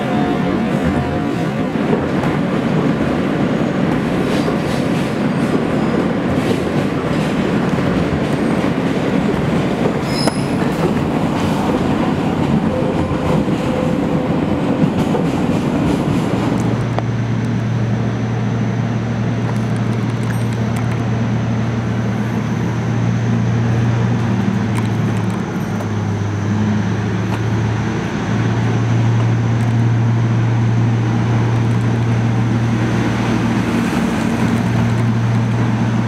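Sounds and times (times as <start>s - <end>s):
train wheels clattering on rails: 0.1s - 17.6s
faint wheel squeal: 10.0s - 10.7s.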